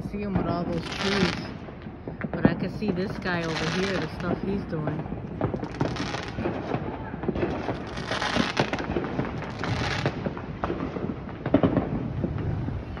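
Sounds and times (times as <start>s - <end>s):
firework bang: 0.0s - 13.0s
fireworks crackling pops: 0.0s - 13.0s
fireworks hissing: 7.4s - 10.2s.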